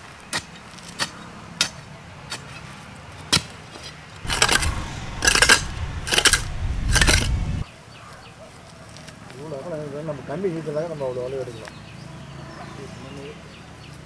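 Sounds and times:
iron bar striking hard earth: 4.2 - 7.6
low rumble: 4.2 - 7.6
scraping and scooping soil: 4.2 - 7.6.

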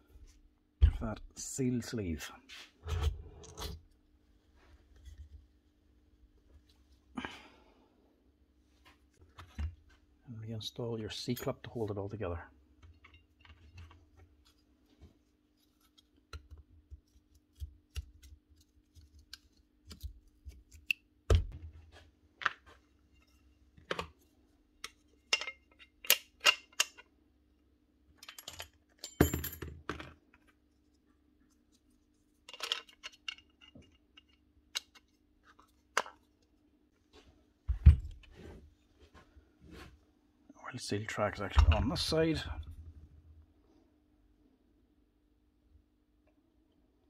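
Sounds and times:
metal and plastic parts clicking: 24.8 - 27.1, 32.4 - 36.2.

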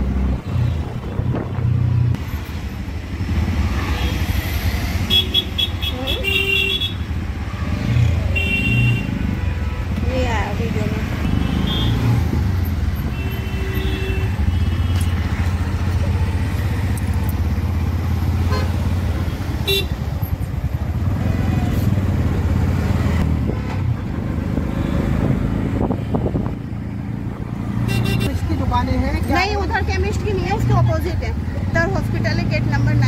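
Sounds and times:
auto-rickshaw engine droning: 0.0 - 33.0
street traffic: 0.0 - 33.0
car horn toots: 27.9 - 28.3.

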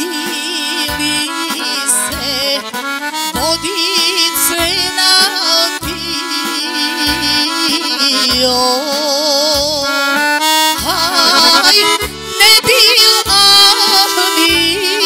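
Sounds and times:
electronic keyboard: 0.0 - 15.0
woman singing with vibrato: 0.0 - 15.0
bass beat: 2.1 - 5.1, 5.8 - 6.4, 7.0 - 8.8, 9.6 - 13.7.

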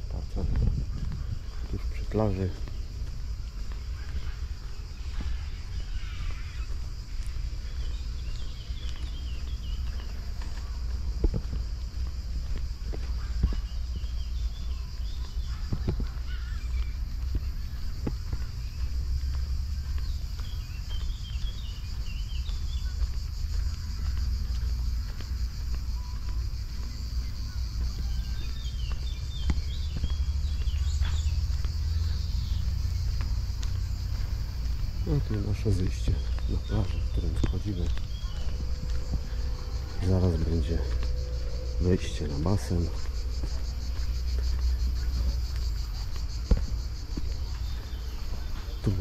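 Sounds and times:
cicadas buzzing: 0.0 - 49.0
footsteps on paved path: 0.0 - 49.0
high-pitched insect chorus: 0.0 - 49.0
bird chirps: 0.1 - 11.2, 11.9 - 49.0
low rumble: 36.1 - 48.5.

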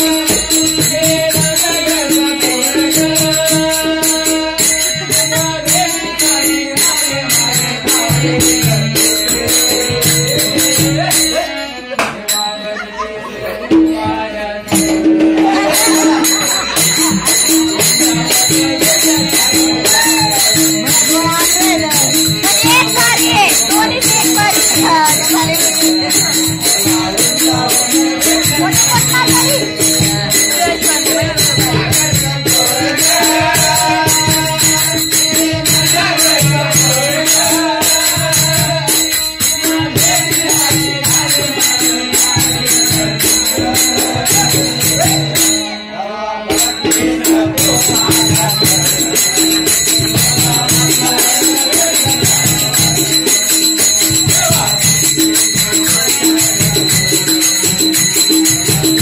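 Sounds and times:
jingling rattling percussion: 0.0 - 45.9, 46.5 - 59.0
lively dance music: 19.8 - 26.2.

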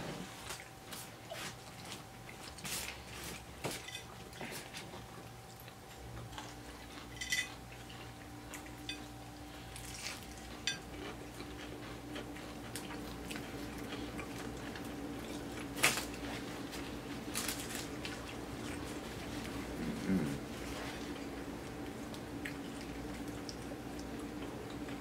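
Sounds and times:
faint steady hum: 0.0 - 25.0
paper wrappers crinkling: 17.2 - 18.2.

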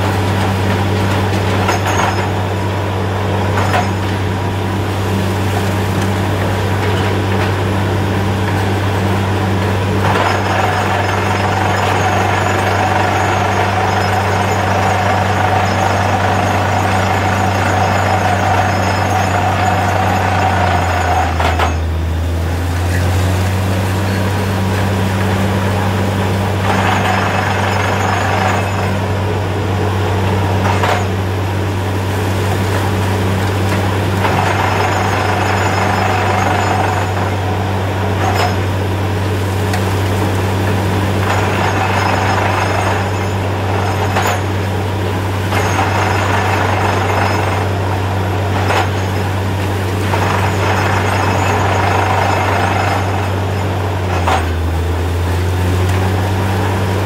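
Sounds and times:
drilling rig engine drone: 0.0 - 57.0.

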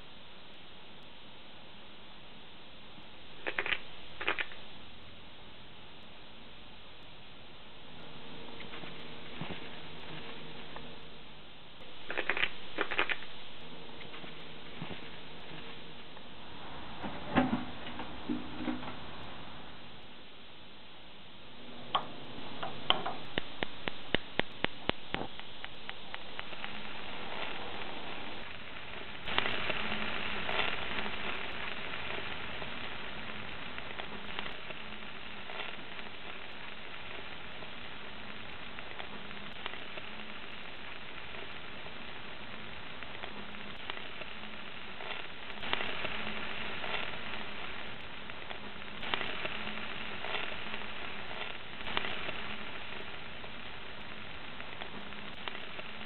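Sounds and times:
peppers sizzling on a grill: 3.3 - 4.7, 8.2 - 16.4, 21.9 - 56.0.

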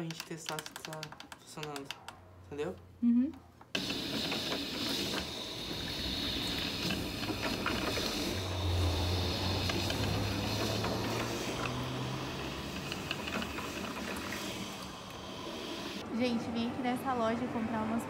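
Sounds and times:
coffee maker hissing: 3.8 - 16.0.

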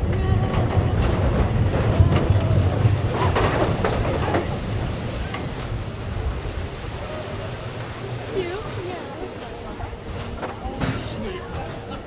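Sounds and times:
roller coaster cars clacking: 0.0 - 12.0
roller coaster wheels rumbling: 0.0 - 12.0.

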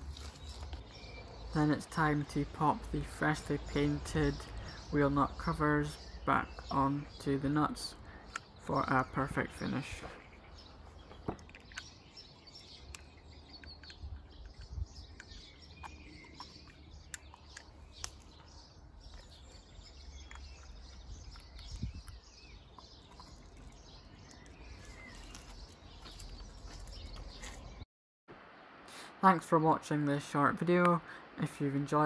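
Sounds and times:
small birds chirping: 0.0 - 27.8
sharp clicks: 11.3 - 18.5.

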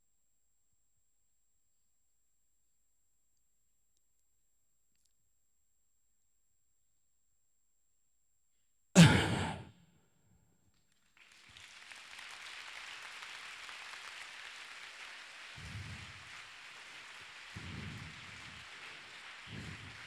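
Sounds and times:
breathy burst into microphone: 9.0 - 9.7, 17.5 - 18.6
steady rain-like hiss: 11.6 - 20.0.

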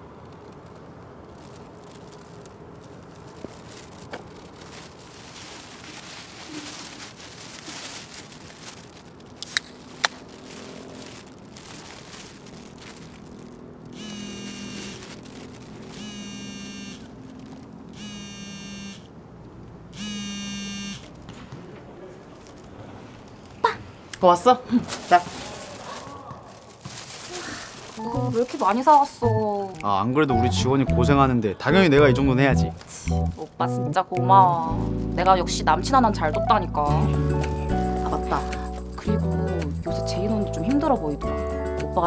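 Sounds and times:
plastic bag rustling: 0.0 - 18.0, 21.0 - 29.9, 32.7 - 33.6, 34.6 - 36.2
mobile phone vibrating: 14.0 - 15.1, 16.0 - 17.1, 18.0 - 19.1, 19.9 - 21.1.

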